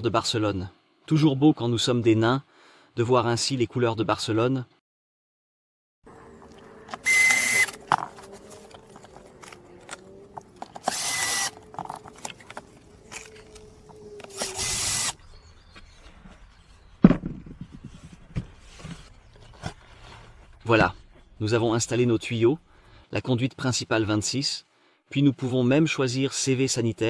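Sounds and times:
cordless drill driving screws: 6.9s - 8.2s, 9.9s - 12.3s, 13.2s - 15.2s.

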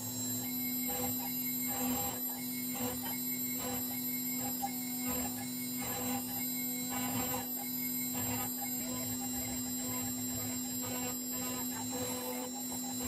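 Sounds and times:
router spindle hum and whine: 0.0s - 13.0s
router bit cutting: 3.6s - 13.0s.

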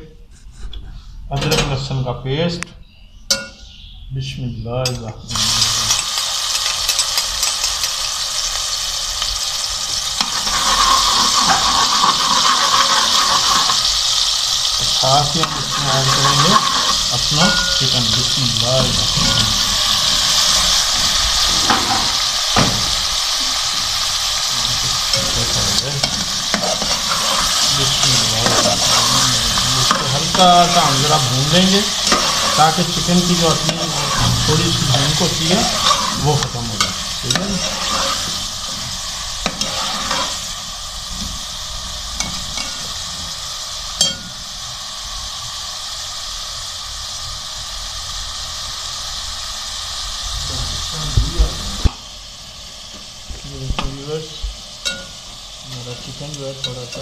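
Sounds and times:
metal spoon clinking against pot: 3.3s - 3.7s, 54.8s - 55.2s
chicken sizzling in hot oil: 5.3s - 57.0s
sharp knock: 22.6s - 22.9s.

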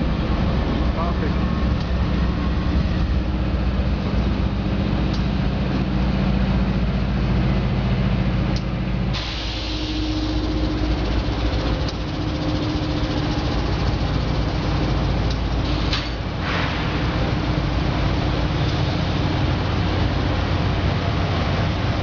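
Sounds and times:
locomotive diesel engine hum: 0.0s - 22.0s
wheel and rail rumble: 0.0s - 22.0s
air hiss: 9.2s - 10.4s.

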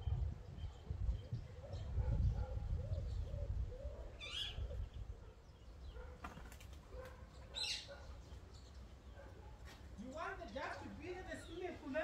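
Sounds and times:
dove cooing: 1.2s - 5.0s.

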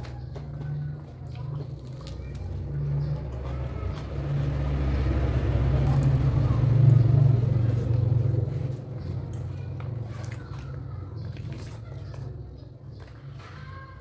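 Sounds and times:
passing vehicle engine rumble: 0.0s - 14.0s.

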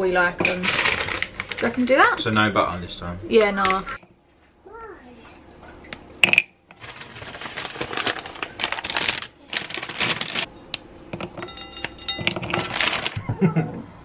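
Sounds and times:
chocolate clattering into a bowl: 11.2s - 13.2s.

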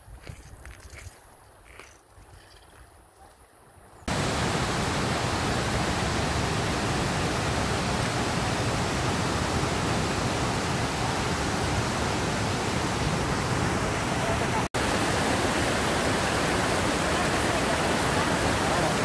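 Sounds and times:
river rapids rushing: 4.1s - 19.0s.

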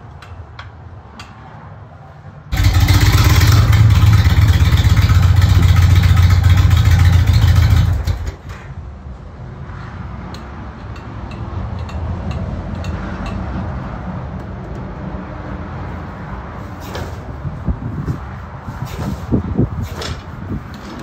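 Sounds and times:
motorcycle engine idling: 2.5s - 8.4s.

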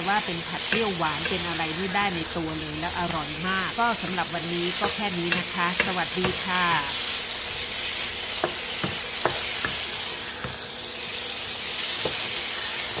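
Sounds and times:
stir-fry sizzling in a frying pan: 0.0s - 13.0s
spatula scraping and tapping pan: 0.6s - 1.5s, 4.0s - 6.5s, 8.3s - 10.7s, 11.8s - 13.0s.

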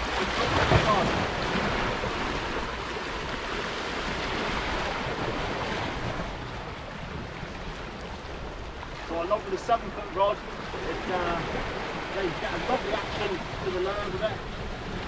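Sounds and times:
sea surf washing against rocks: 0.0s - 15.0s
wind on microphone: 10.4s - 15.0s.

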